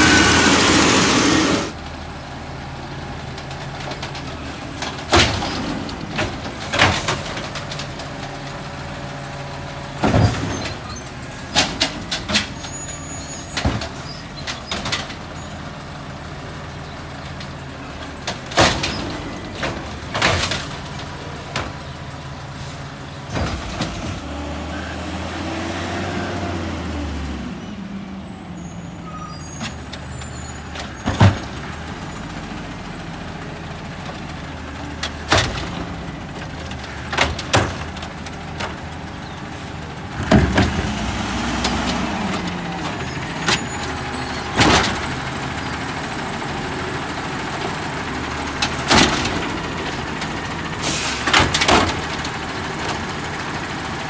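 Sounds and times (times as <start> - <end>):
hydraulic arm working: 0.0 - 1.8
garbage truck engine revving: 0.0 - 54.0
carts clanking and banging: 3.2 - 25.6, 29.0 - 54.0.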